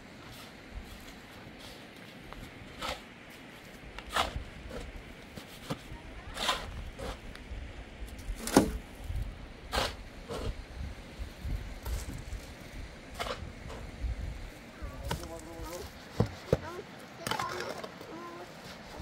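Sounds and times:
shovel scraping sand: 0.2s - 7.3s, 9.7s - 10.6s, 11.8s - 13.9s.

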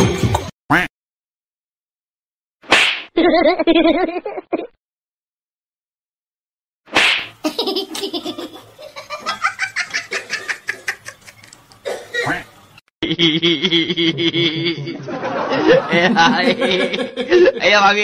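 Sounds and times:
person laughing hard: 13.0s - 17.6s.

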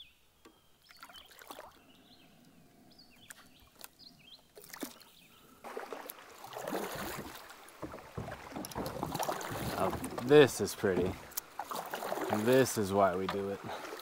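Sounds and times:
faint water drips: 0.8s - 14.0s
paddle strokes splashing water: 0.9s - 1.8s, 4.5s - 14.0s.

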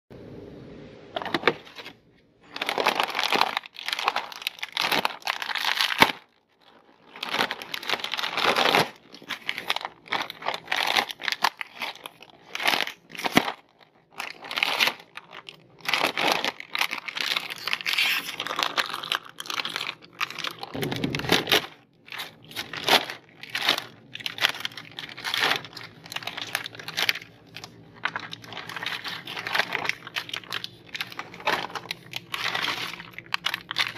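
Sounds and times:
snack bags crinkling: 1.3s - 33.9s.

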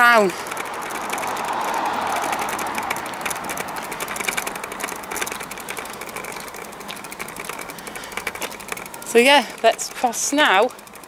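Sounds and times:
bicycle freewheel ticking: 0.0s - 11.0s
rushing noise: 0.5s - 6.3s.

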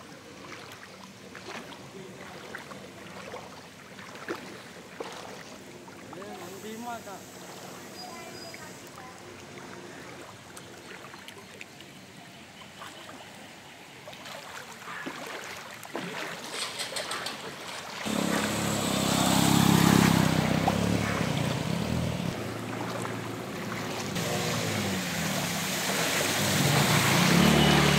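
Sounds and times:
water swishing and lapping: 0.0s - 27.9s
motorcycle engine running: 18.1s - 25.5s.

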